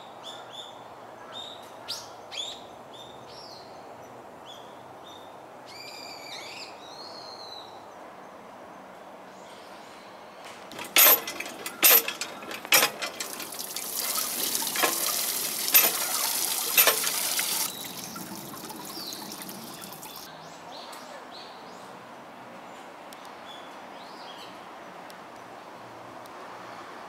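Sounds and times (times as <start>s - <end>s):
pump lever clanking: 10.7s - 20.3s
water gushing onto drain grate: 10.7s - 20.3s.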